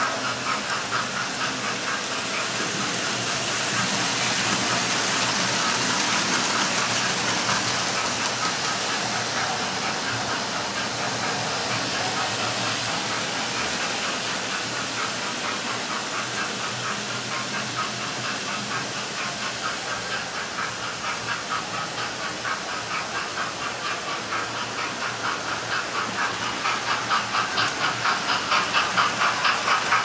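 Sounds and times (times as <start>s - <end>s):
model steam locomotive hiss: 0.0s - 30.0s
model trains running on track: 0.0s - 30.0s.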